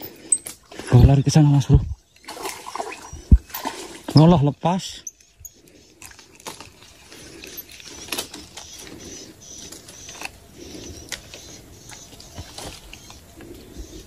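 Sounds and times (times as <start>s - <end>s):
fishing reel clicking and rustling: 3.4s - 10.4s.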